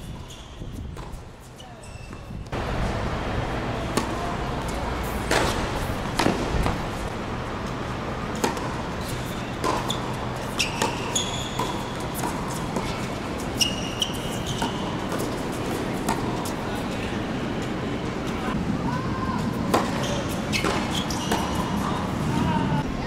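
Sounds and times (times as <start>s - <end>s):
tennis shoes squeaking: 0.0s - 2.6s, 7.6s - 18.6s, 19.7s - 22.1s.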